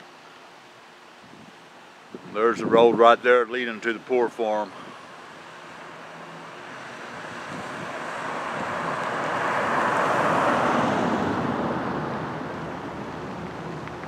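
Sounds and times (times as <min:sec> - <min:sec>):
car driving past: 0:05.5 - 0:13.8.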